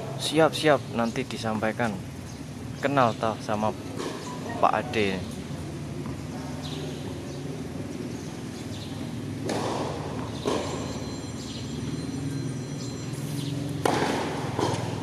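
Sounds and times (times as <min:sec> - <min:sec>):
tennis ball bouncing on court: 0:03.8 - 0:04.6, 0:08.6 - 0:12.0, 0:13.5 - 0:15.0
racket hitting tennis ball: 0:03.9 - 0:04.5, 0:09.4 - 0:11.0, 0:13.7 - 0:15.0.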